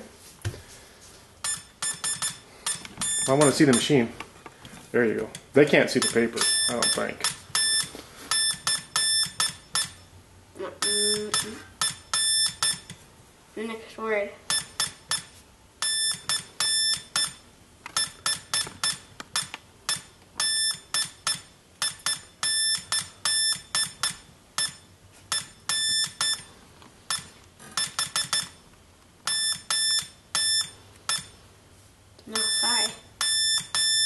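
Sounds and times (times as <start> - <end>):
morse code beeps: 1.4 - 3.9, 6.0 - 10.1, 10.8 - 12.9, 14.5 - 17.4, 18.0 - 26.5, 27.1 - 28.6, 29.3 - 31.4, 32.3 - 34.0.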